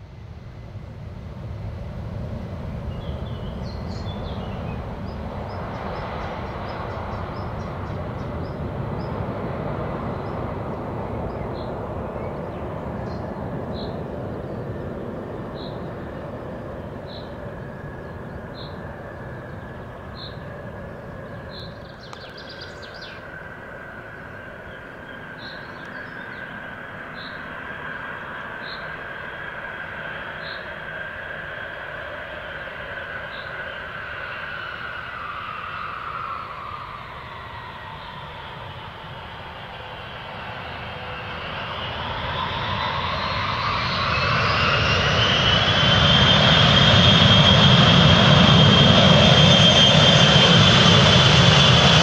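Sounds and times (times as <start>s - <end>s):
high engine whine: 0.0s - 52.0s
jet engines roaring: 0.0s - 52.0s
bird chirping: 19.4s - 23.4s, 24.2s - 27.5s, 28.2s - 28.9s.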